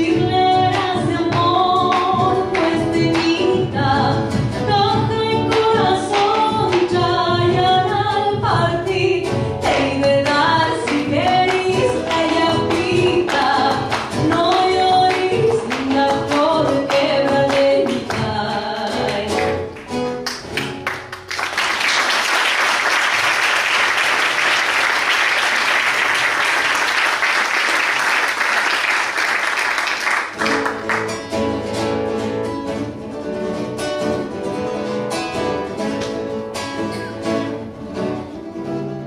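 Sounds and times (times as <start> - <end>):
woman singing: 0.0 - 19.7
classical guitar: 0.0 - 21.9, 30.2 - 39.0
audience applause: 19.8 - 31.2.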